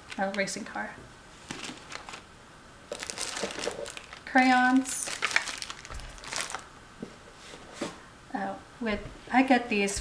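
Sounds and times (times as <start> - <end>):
cardboard box rustling: 2.9 - 4.2.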